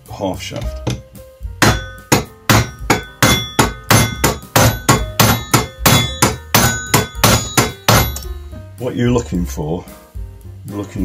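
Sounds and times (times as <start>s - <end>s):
mallet tapping on metal socket: 1.6s - 8.3s.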